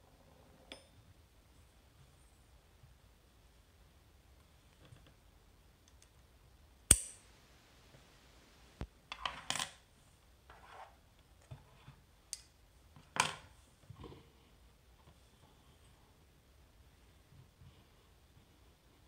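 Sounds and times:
light metal scrapes: 0:10.5 - 0:11.0.

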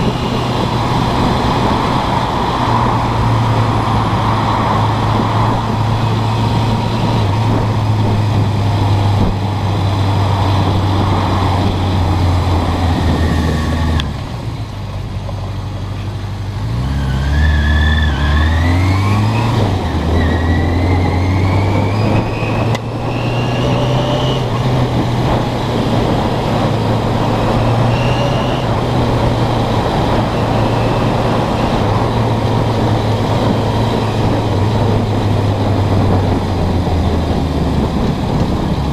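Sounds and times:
motorcycle engine running: 0:00.0 - 0:16.6.

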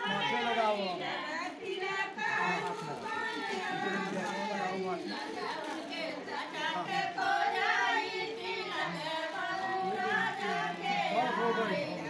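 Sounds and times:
high voices singing together: 0:02.8 - 0:12.0.

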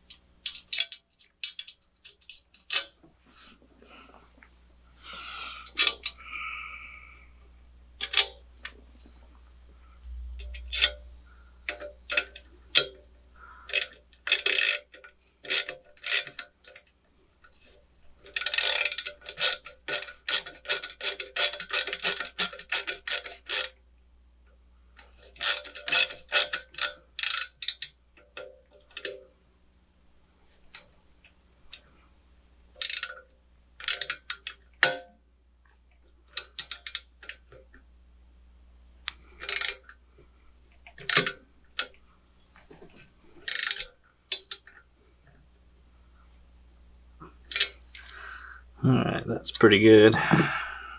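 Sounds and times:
ratchet wrench clicking: 0:00.1 - 0:02.9, 0:05.7 - 0:06.2, 0:08.0 - 0:08.4, 0:10.0 - 0:11.0, 0:13.7 - 0:16.5, 0:18.3 - 0:23.8, 0:25.4 - 0:28.0, 0:32.8 - 0:33.2, 0:33.8 - 0:35.0, 0:36.4 - 0:37.4, 0:39.4 - 0:39.9, 0:41.0 - 0:41.4, 0:43.4 - 0:44.8.

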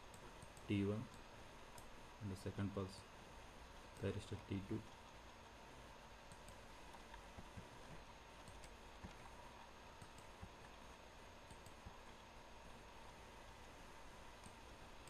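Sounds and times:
computer mouse clicks: 0:00.0 - 0:01.9, 0:06.3 - 0:07.7, 0:08.4 - 0:09.2, 0:10.0 - 0:10.6, 0:11.4 - 0:12.0, 0:14.4 - 0:14.6.

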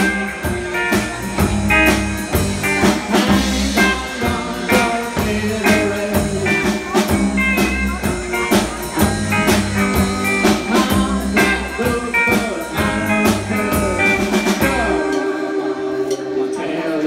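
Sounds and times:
double bass: 0:00.0 - 0:16.5
drum kit: 0:00.0 - 0:17.0
electric guitar: 0:00.0 - 0:17.0.

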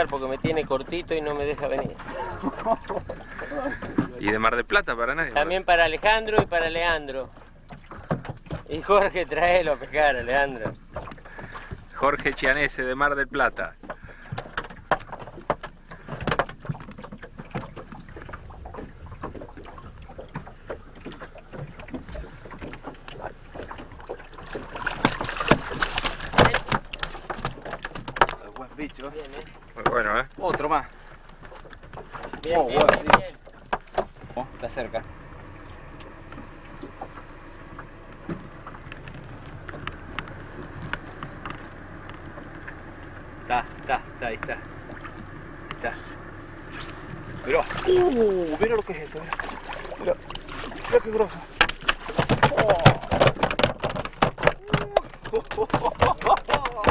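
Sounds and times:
water slapping against boat hull: 0:00.0 - 0:56.9
wind: 0:00.0 - 0:56.9
small clicks and knocks: 0:25.0 - 0:34.4
knocks and clatter: 0:51.6 - 0:56.9.

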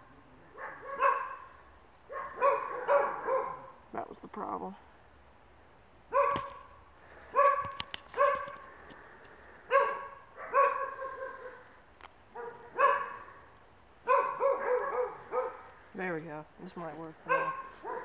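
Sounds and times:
dog barking: 0:00.6 - 0:03.8, 0:06.1 - 0:06.7, 0:07.3 - 0:08.6, 0:09.7 - 0:11.6, 0:12.3 - 0:13.4, 0:14.0 - 0:15.7, 0:17.2 - 0:18.0.

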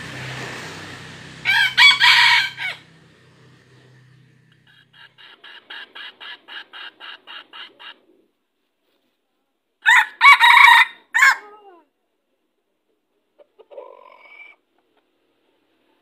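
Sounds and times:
rooster crowing: 0:01.3 - 0:03.1, 0:09.8 - 0:11.6
soft clucks: 0:13.2 - 0:15.2.

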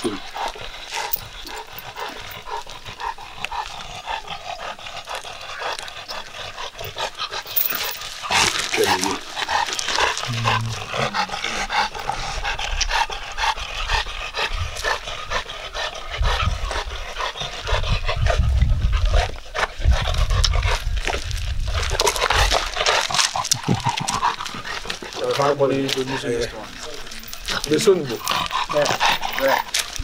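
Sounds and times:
dog panting: 0:00.0 - 0:21.2, 0:21.8 - 0:30.0
low rumble: 0:10.2 - 0:12.9.

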